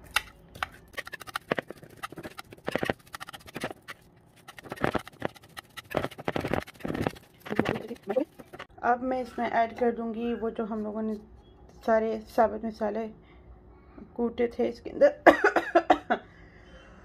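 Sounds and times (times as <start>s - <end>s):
whisk wires clicking on bowl: 0.1s - 8.7s
squishy scrapes through potato: 0.6s - 8.7s.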